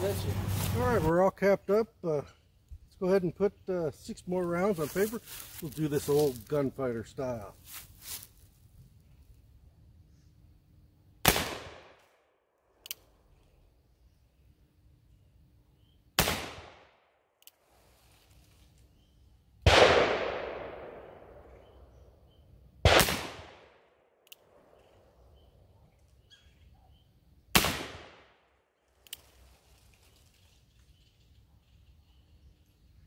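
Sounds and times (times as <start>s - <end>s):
revolver gunshots with echo: 11.2s - 12.0s, 16.2s - 16.9s, 19.6s - 21.8s, 22.8s - 23.9s, 27.5s - 28.4s.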